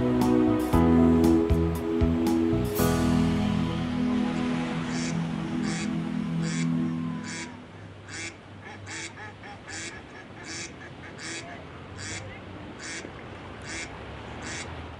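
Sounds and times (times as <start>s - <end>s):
background music: 0.0s - 7.9s
duck quacking: 4.9s - 14.8s.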